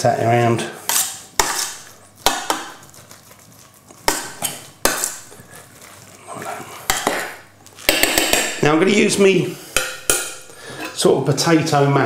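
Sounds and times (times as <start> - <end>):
utensil scraping through mash: 0.8 - 8.0
utensil knocking against pot: 7.9 - 8.8, 9.8 - 10.6.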